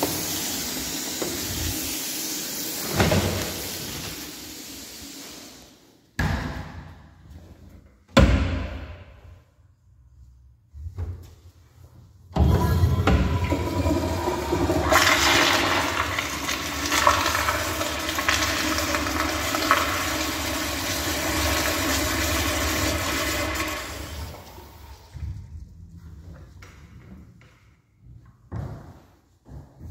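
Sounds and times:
toilet flushing water rush: 0:00.0 - 0:05.9, 0:12.4 - 0:25.2.

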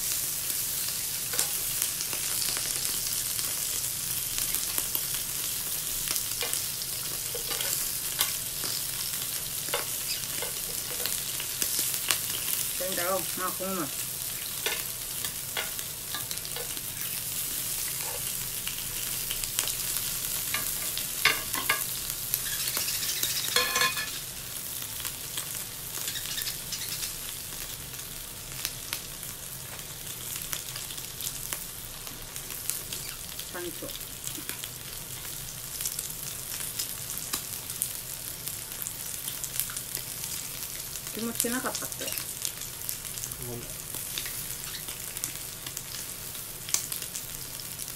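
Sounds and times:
meat sizzling on grill: 0:00.0 - 0:47.9.

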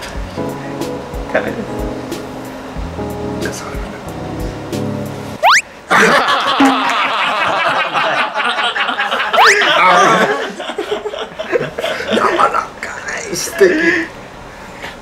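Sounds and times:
rising whistle sound effect: 0:05.4 - 0:05.7, 0:09.4 - 0:09.7
people laughing: 0:05.9 - 0:12.6.

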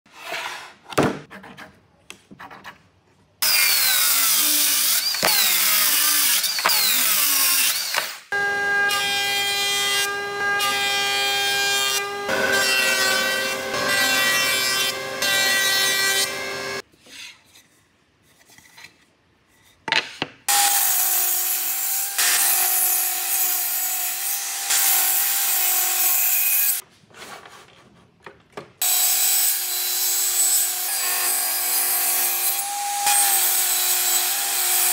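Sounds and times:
woodworking power tools: 0:03.4 - 0:16.8, 0:20.5 - 0:26.8, 0:28.8 - 0:34.9
thickness planer running: 0:08.4 - 0:16.8.

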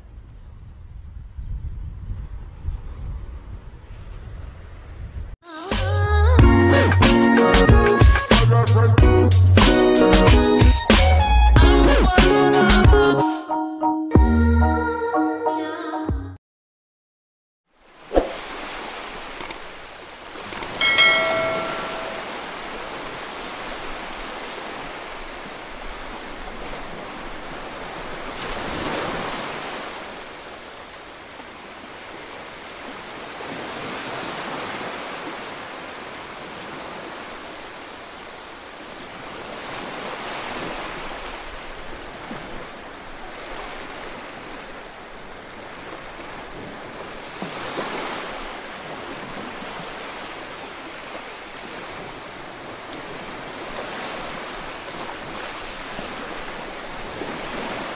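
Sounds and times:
sea waves washing on sand: 0:17.8 - 0:57.9.

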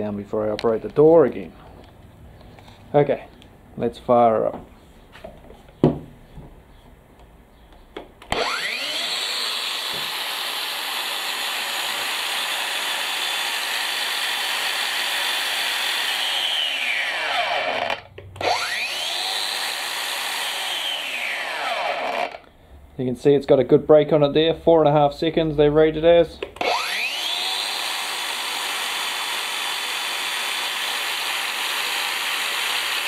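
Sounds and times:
angle grinder motor whining: 0:08.3 - 0:22.5, 0:26.6 - 0:33.0.

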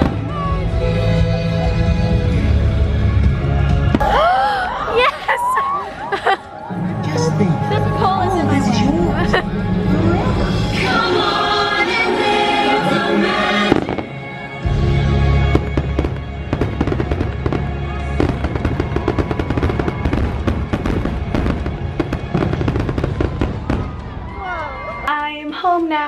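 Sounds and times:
show music: 0:00.0 - 0:26.0
fireworks crackling: 0:13.6 - 0:14.6, 0:15.4 - 0:26.0
fireworks booms: 0:13.7 - 0:14.1, 0:15.5 - 0:24.8.

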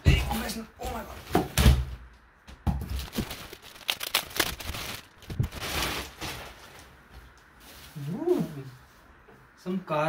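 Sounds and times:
plastic wrapping crinkling: 0:02.9 - 0:08.2.

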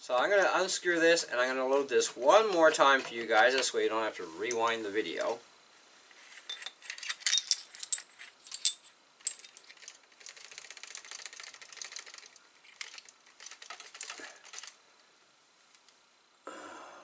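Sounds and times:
metal clinks and rattles: 0:06.4 - 0:14.8.

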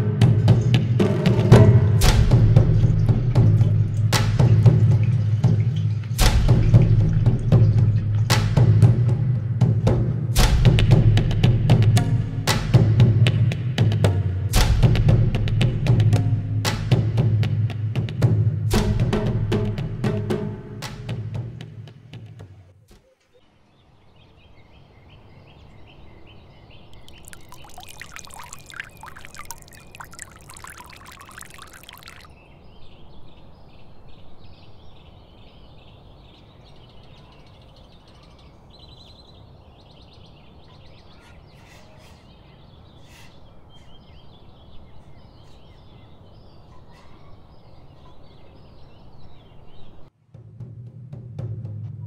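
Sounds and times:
sugar pouring into water: 0:27.0 - 0:32.3.

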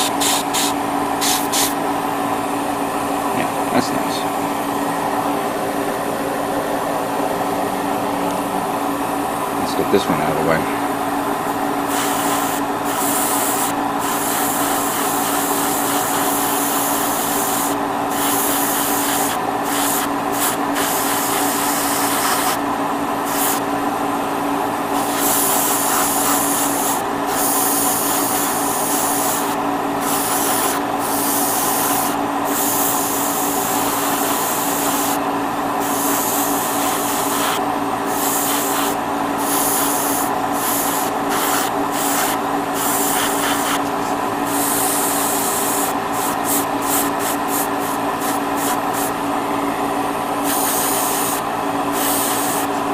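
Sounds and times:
airbrush hissing: 0:00.0 - 0:01.8, 0:11.8 - 0:22.6, 0:23.2 - 0:23.6, 0:25.0 - 0:35.2, 0:35.8 - 0:49.2, 0:50.4 - 0:52.8
steady machine hum: 0:00.0 - 0:52.9.

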